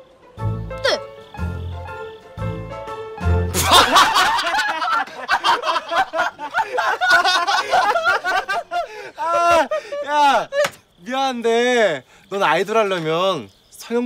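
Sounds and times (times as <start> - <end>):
men laughing loudly: 3.5 - 10.9.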